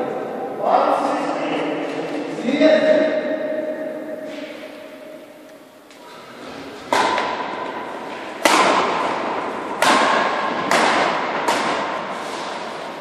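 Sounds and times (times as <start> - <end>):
rackets smacking shuttlecock: 6.8 - 12.9.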